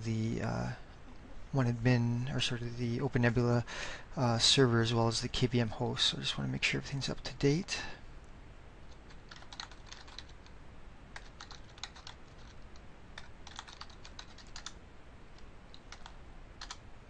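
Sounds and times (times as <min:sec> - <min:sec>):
keyboard typing: 0:08.9 - 0:14.8, 0:15.4 - 0:16.8.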